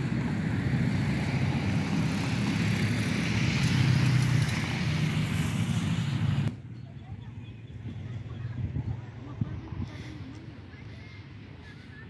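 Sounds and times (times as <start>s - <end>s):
vehicle passing: 0.0s - 6.6s
low rumble of cars: 0.0s - 12.0s.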